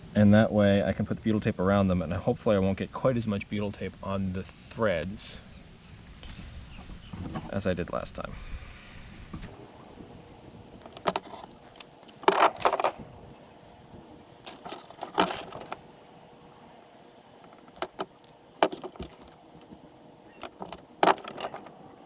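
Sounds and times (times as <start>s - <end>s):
small metal screws clinking: 10.8s - 13.0s, 14.4s - 15.8s, 17.4s - 21.8s.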